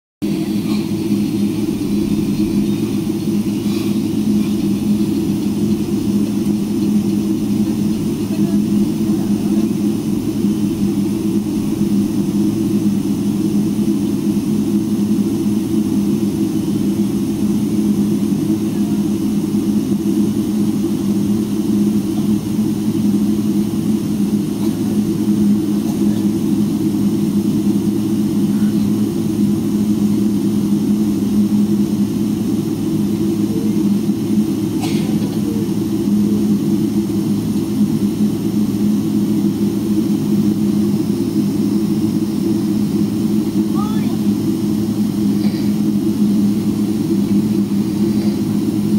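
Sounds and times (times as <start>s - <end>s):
jet engine and cabin hum: 0.2s - 48.9s.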